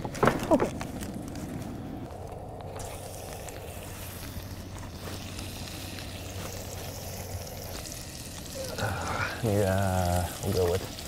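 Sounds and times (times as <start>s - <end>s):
constant low hum: 0.0s - 11.0s
meat sizzling in a skillet: 2.8s - 11.0s.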